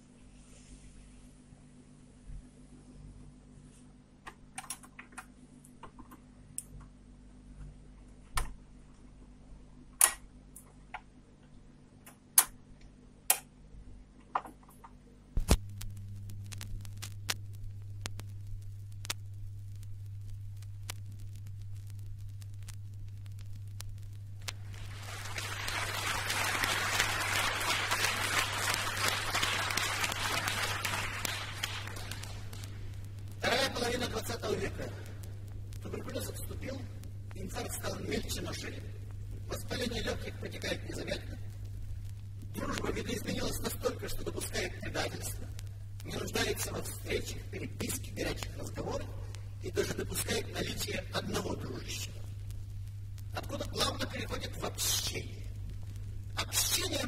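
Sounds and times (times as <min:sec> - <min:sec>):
record hum with crackle: 0:00.0 - 0:57.0
audience applause: 0:24.6 - 0:32.7.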